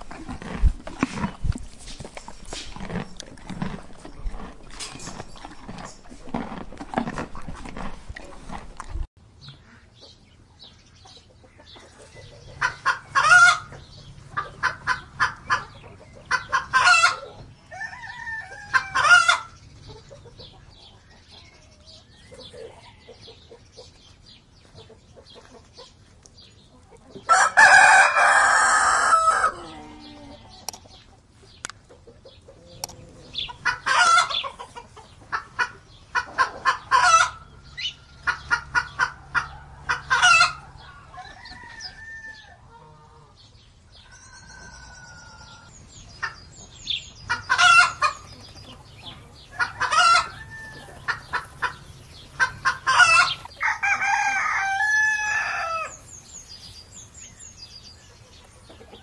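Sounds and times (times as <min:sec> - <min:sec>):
hens clucking: 0:00.0 - 0:10.2, 0:11.0 - 0:41.8, 0:44.6 - 0:59.0
rooster crowing: 0:17.7 - 0:19.4, 0:27.3 - 0:30.1, 0:40.4 - 0:42.6, 0:49.5 - 0:51.8, 0:52.4 - 0:56.0.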